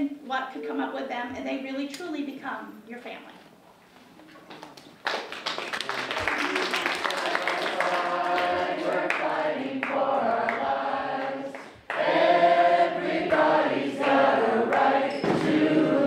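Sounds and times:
group of people singing: 7.1s - 16.0s.

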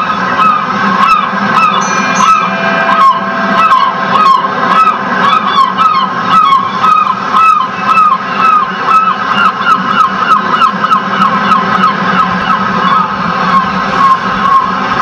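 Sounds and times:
birds honking through speakers: 0.0s - 15.0s
steady low background: 1.3s - 6.8s.

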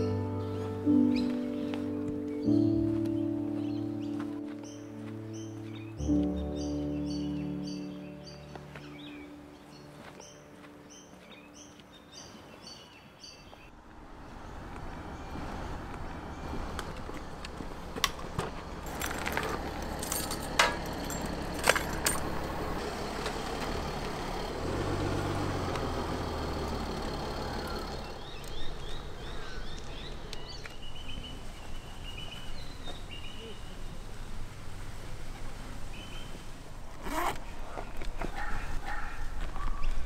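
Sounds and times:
birds chirping: 0.0s - 40.0s
vehicle engine humming: 13.6s - 39.0s
sharp clicks and jingles: 18.8s - 22.6s.

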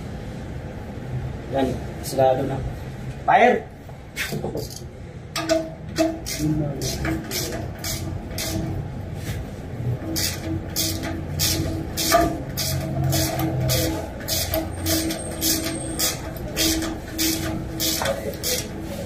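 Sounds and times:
shop machinery hum: 0.0s - 19.0s
rhythmic hissing bursts: 10.1s - 19.0s.

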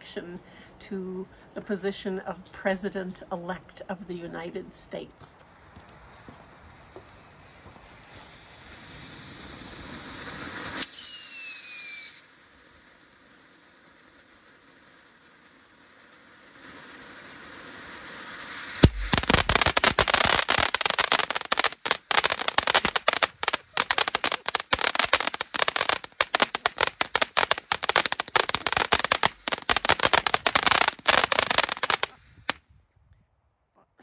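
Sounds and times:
firework hissing: 5.5s - 32.6s
rapid crackling of popping sparks: 5.7s - 32.6s.

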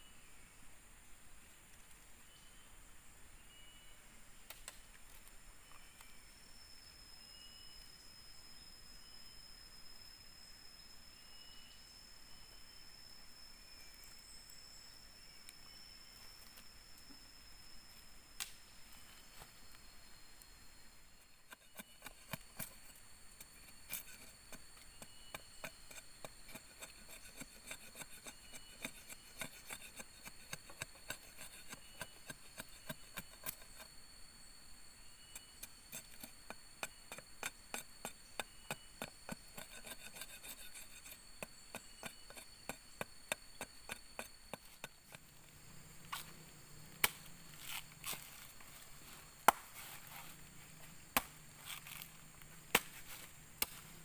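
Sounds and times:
machete chopping wooden stick: 47.0s - 48.2s, 49.4s - 49.8s, 51.1s - 52.0s, 52.6s - 53.9s.

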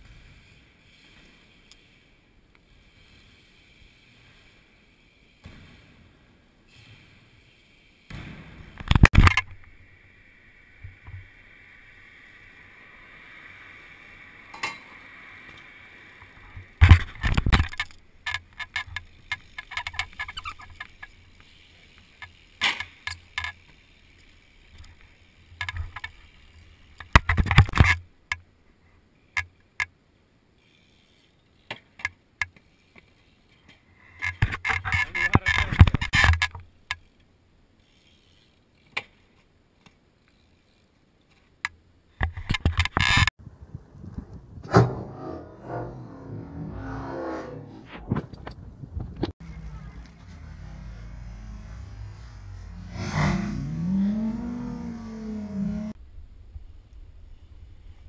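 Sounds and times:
bike clattering on asphalt: 14.4s - 28.4s.

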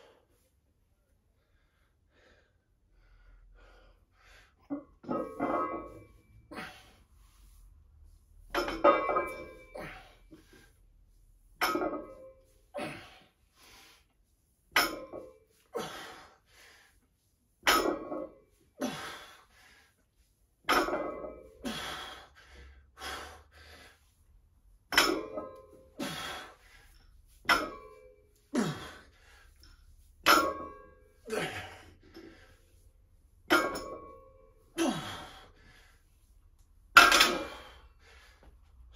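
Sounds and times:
heavy breathing: 21.5s - 24.4s, 25.8s - 27.4s.

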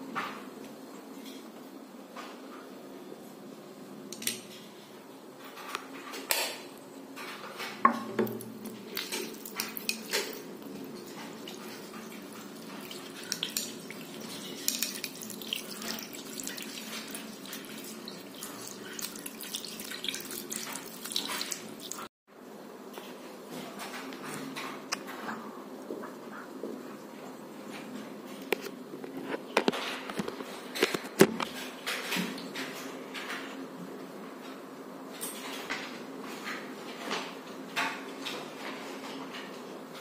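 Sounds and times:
tap water running into sink: 7.9s - 22.1s.

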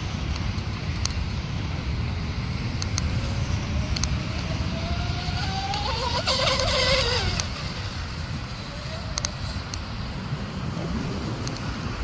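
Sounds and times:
electric motors whining: 4.0s - 9.3s.

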